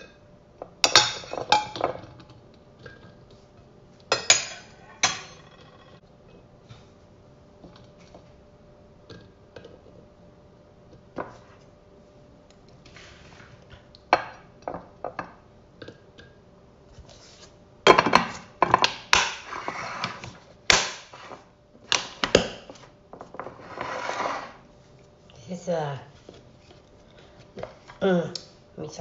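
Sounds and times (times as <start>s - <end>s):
dishes and utensils clattering: 0.8s - 3.1s, 4.1s - 6.0s.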